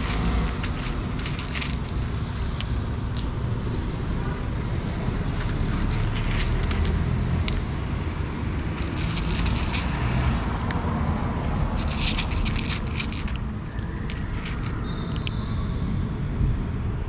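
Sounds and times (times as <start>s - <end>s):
cats crunching dry kibble: 0.0s - 2.7s, 5.2s - 7.7s, 8.4s - 10.5s, 11.7s - 15.3s
low background rumble: 0.0s - 14.8s.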